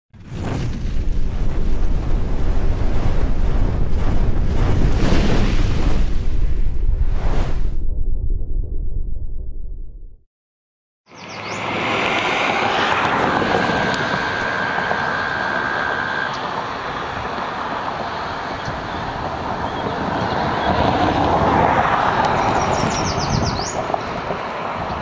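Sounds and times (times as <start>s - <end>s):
steady high tone: 11.3s - 17.1s.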